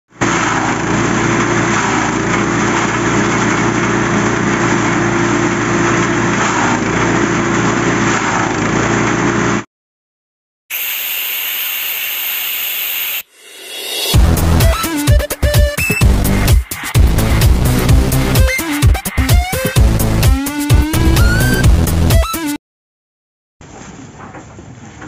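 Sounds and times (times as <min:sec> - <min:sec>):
high hissing sound effect: 0:10.7 - 0:17.0
petrol engine driving chopper: 0:13.3 - 0:22.6.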